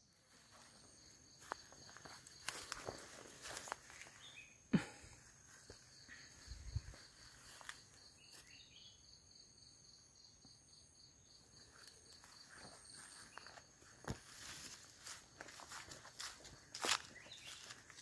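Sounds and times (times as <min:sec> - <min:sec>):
insect trill: 0:00.0 - 0:18.0.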